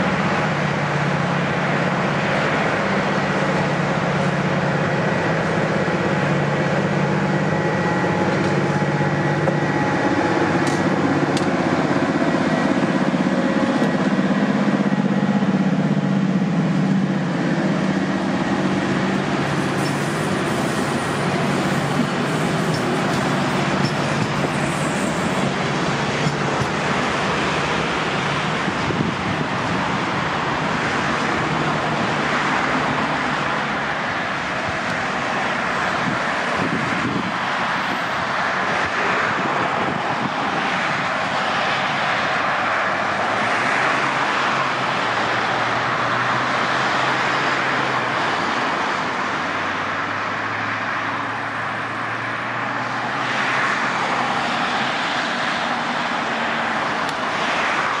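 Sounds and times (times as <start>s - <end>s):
lorry engine low hum: 0.0s - 30.0s
road traffic roar: 0.0s - 58.0s.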